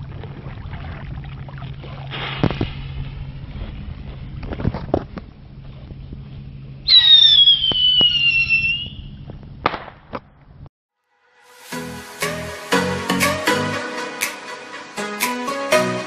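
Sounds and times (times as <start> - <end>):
falling whistle: 6.9 - 9.1.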